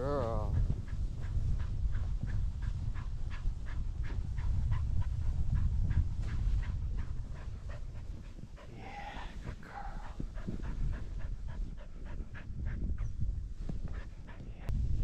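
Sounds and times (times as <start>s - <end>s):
rush of wind and snow: 0.0s - 15.0s
dog panting: 0.4s - 14.7s.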